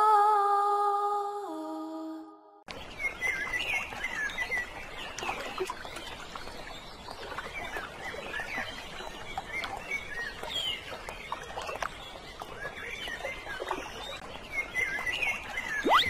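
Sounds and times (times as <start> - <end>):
small birds chirping: 2.7 - 16.0.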